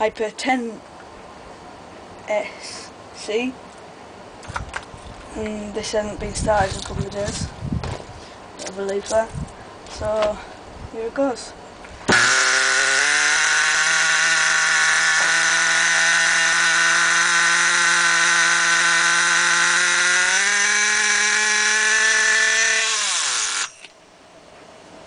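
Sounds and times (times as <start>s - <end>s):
nitro engine running: 12.1s - 23.8s.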